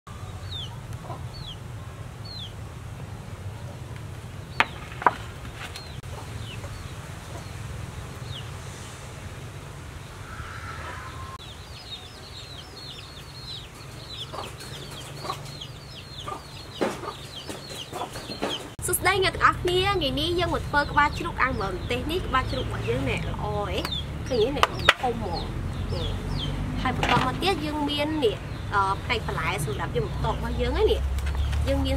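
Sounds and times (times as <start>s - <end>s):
chicks peeping: 0.1s - 2.6s, 5.6s - 8.5s, 10.8s - 18.8s, 20.4s - 31.9s.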